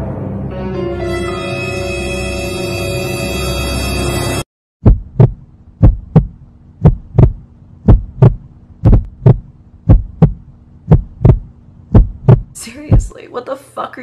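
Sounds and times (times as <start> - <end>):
heartbeat thumps: 4.8 - 13.2
steady low hum: 4.8 - 13.2.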